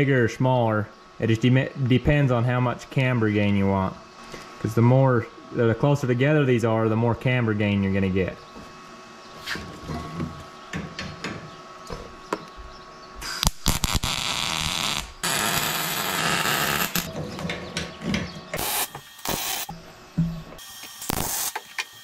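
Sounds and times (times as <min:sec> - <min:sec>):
welder crackling hiss: 0:13.2 - 0:17.1, 0:18.6 - 0:19.7, 0:20.6 - 0:22.0.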